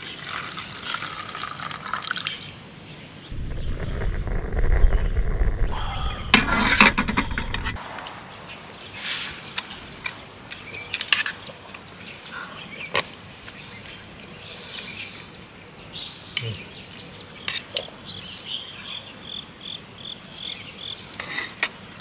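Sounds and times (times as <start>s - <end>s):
low rushing noise: 3.3s - 9.0s.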